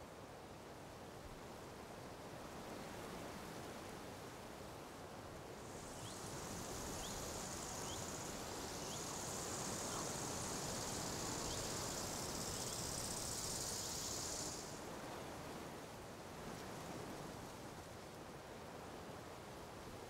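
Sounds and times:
low background noise: 0.0 - 20.0
insects buzzing drone: 5.6 - 15.0
faint chirps: 5.7 - 14.8.

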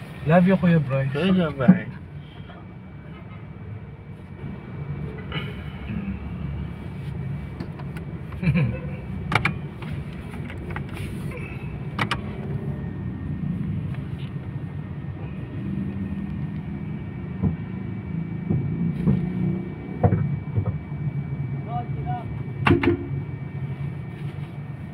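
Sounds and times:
car engine idling: 0.0 - 24.9.

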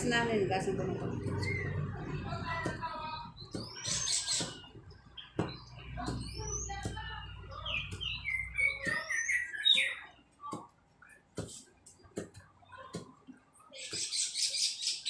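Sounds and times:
birds chirping: 0.0 - 15.0
knife chopping on wooden board: 2.6 - 4.7, 5.4 - 7.0, 11.4 - 13.1.

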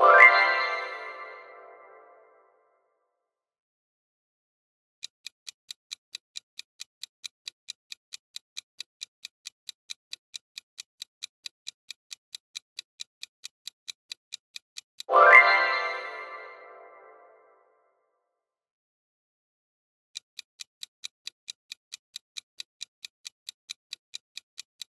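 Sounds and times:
fast clock-like ticking: 5.0 - 15.7, 20.1 - 24.9.

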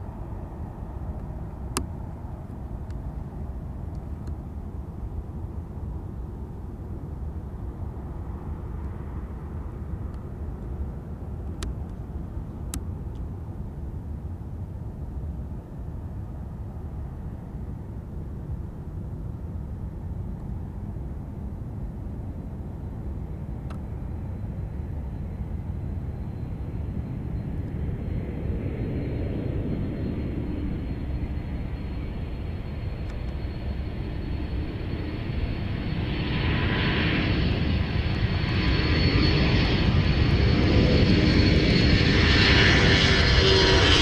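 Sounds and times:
high engine whine: 0.0 - 44.0
jet engines rumbling: 15.2 - 44.0.

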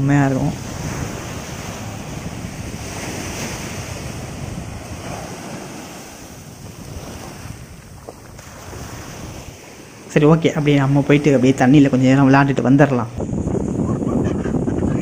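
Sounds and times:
surf breaking on shore: 0.0 - 15.0
wind buffeting microphone: 0.0 - 15.0.

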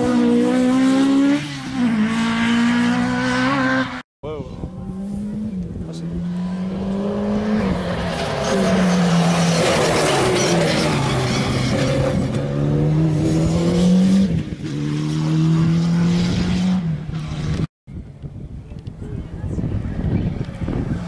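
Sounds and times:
rally car engine revving: 0.0 - 4.0, 4.7 - 17.7
tyre and wind noise: 4.2 - 21.0.

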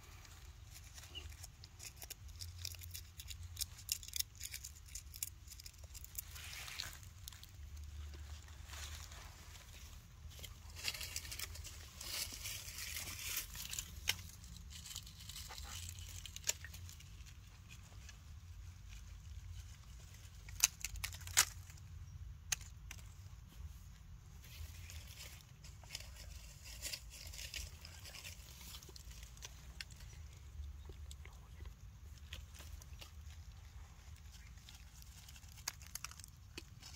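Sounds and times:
soft rustling: 5.0 - 20.6, 23.0 - 36.9.

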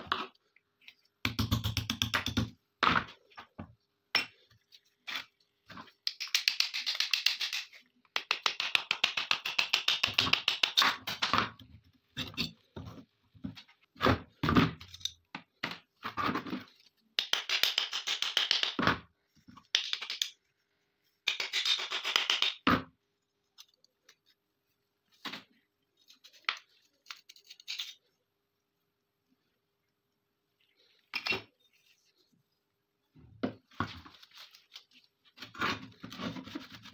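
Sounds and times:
metal parts scraping and rattling: 27.0 - 28.1.

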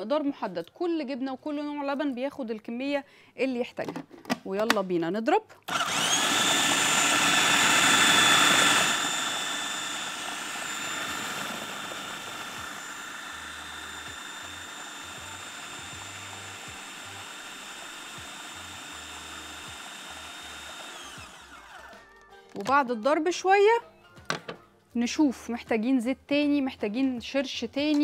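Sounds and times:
food processor motor whine: 5.7 - 22.2.

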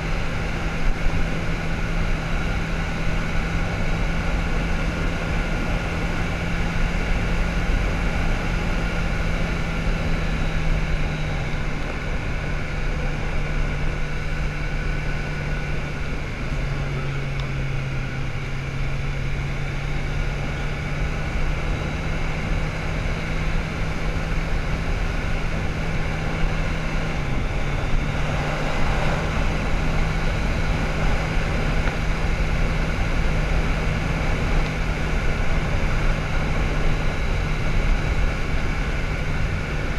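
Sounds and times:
motorcycle engine cruising: 0.0 - 39.9
wind rushing over microphone: 20.8 - 39.9.

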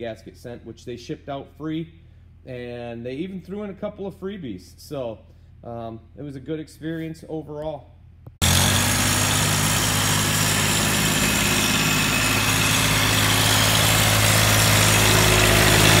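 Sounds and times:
tractor diesel engine running: 8.4 - 16.0.

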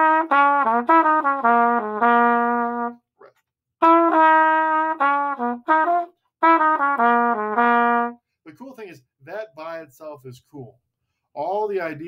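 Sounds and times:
trumpet playing blues lick: 0.0 - 3.1, 3.8 - 8.2.

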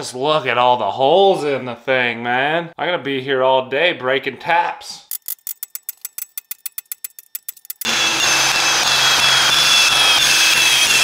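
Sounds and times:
cordless drill whining: 7.8 - 11.0.

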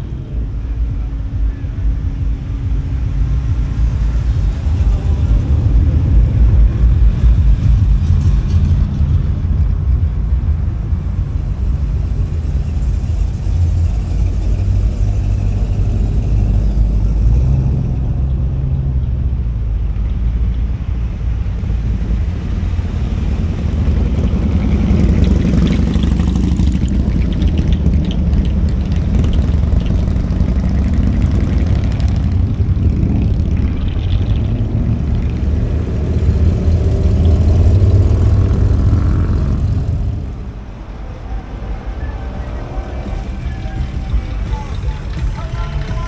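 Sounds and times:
cars driving past: 0.0 - 46.0.

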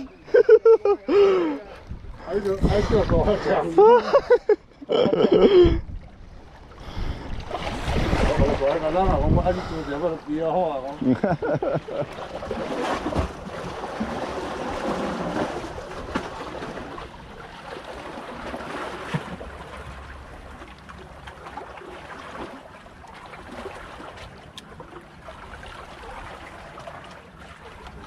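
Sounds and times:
water lapping and sloshing: 0.0 - 28.0
wind on microphone: 1.8 - 3.5, 5.4 - 10.3.

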